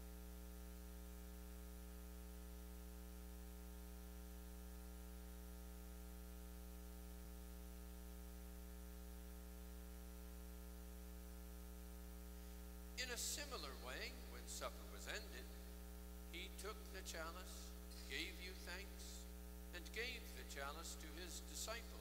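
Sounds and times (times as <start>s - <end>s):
electrical mains hum: 0.0s - 22.0s
faint hiss: 8.3s - 22.0s.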